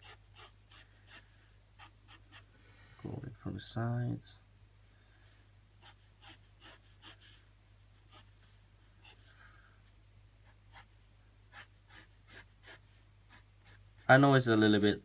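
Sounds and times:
pencil scratching on paper: 0.0s - 2.5s, 5.8s - 7.4s, 8.1s - 8.4s, 9.0s - 9.3s, 10.4s - 15.0s.

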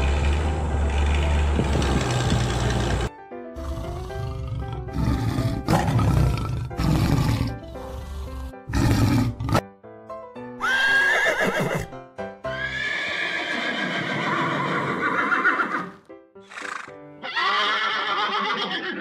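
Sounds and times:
background music: 0.0s - 18.7s
horse whinnying: 10.6s - 11.9s, 12.5s - 19.0s.

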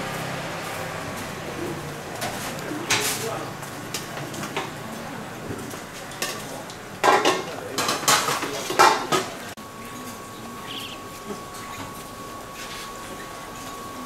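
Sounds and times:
metal cookware clanking and scraping: 2.2s - 3.3s, 6.1s - 9.4s.

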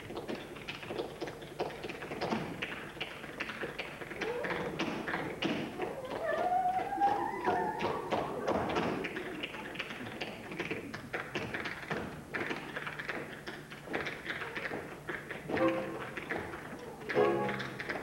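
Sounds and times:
tap shoes striking stage floor: 7.8s - 18.0s
music playing: 15.5s - 16.3s, 17.2s - 18.0s.

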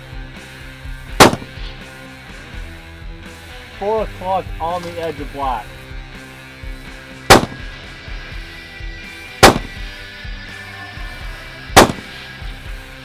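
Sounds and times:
background music: 0.0s - 13.0s
rifle shots: 1.2s - 1.7s, 7.3s - 7.8s, 9.4s - 9.9s, 11.8s - 12.2s.

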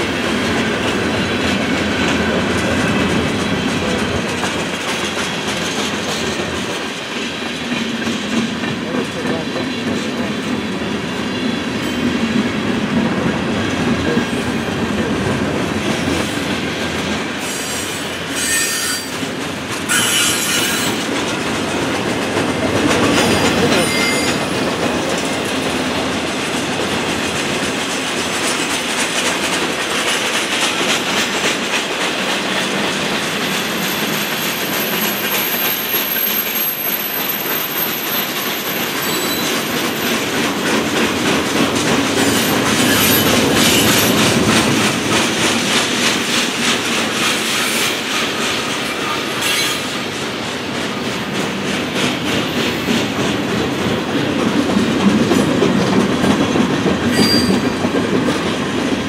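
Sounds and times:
train wheels rumbling on rails: 0.0s - 59.0s
high-pitched wheel squeal: 17.4s - 19.1s, 19.9s - 21.0s, 23.2s - 24.5s, 39.0s - 39.6s, 57.1s - 57.7s.

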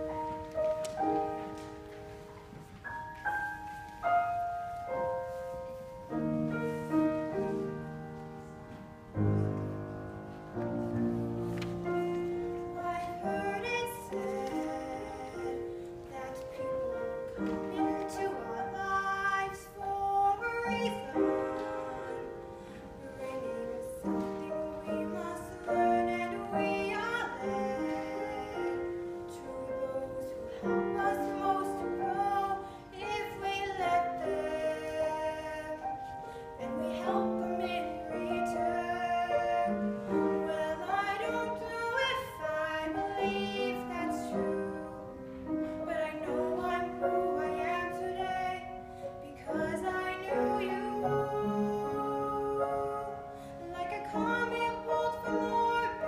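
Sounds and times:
grand piano accompaniment: 0.0s - 56.0s
girls singing: 12.0s - 56.0s.

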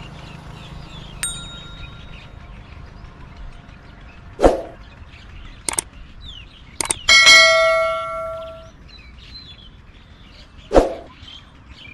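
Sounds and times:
bell ding: 1.2s - 2.3s, 7.1s - 8.7s
mouse click sound effects: 6.8s - 7.1s.

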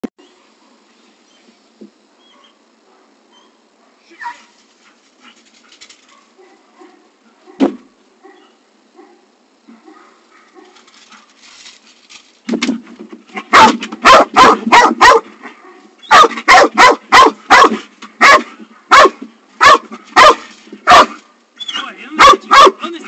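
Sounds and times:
dog barking loudly: 13.4s - 21.2s, 22.2s - 22.8s.

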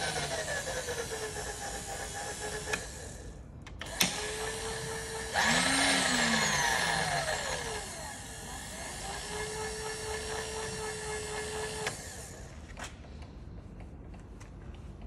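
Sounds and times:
milling machine feed motor whining: 3.8s - 12.4s.

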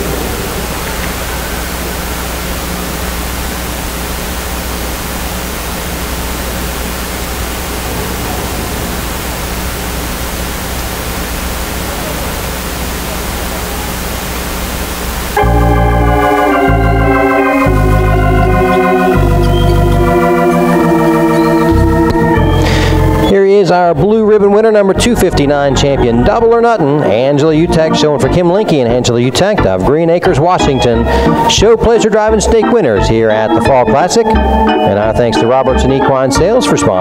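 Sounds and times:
low hum: 0.0s - 23.3s
steady hiss: 0.0s - 23.8s
organ playing held chords: 0.0s - 37.0s.

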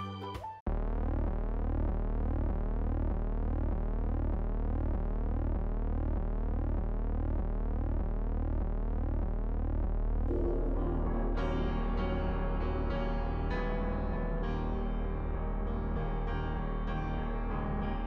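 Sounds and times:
low synth drone: 0.7s - 18.0s
gliding synth tones: 10.3s - 12.8s
electronic tune with piano notes: 10.3s - 18.0s.

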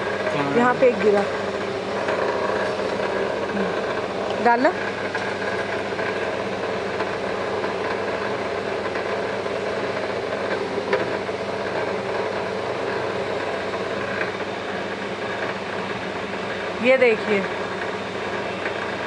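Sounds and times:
machine motor humming: 0.0s - 19.0s.

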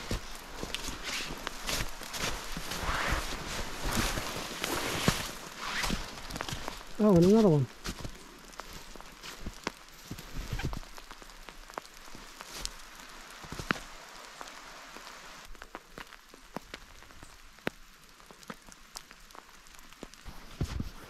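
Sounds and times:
rain pattering and dripping: 0.0s - 21.0s.

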